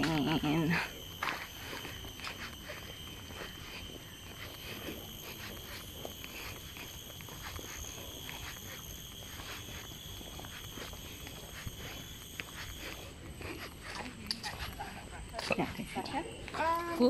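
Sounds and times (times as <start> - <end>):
footsteps on paved trail: 0.0 - 17.0
insects droning: 0.0 - 17.0.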